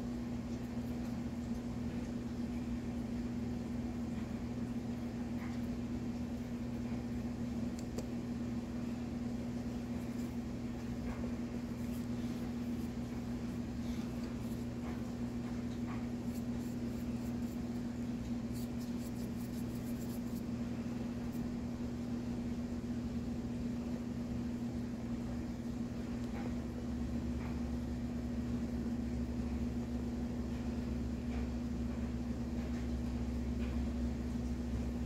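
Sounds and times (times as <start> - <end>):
steady machine hum: 0.0 - 35.0.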